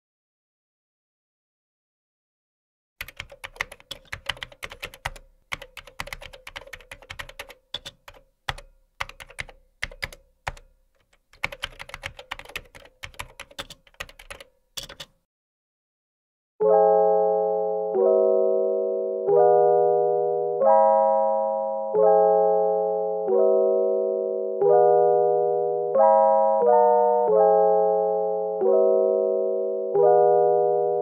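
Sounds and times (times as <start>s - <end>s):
rapid keyboard typing: 3.0s - 15.2s
piano chords: 16.6s - 31.0s.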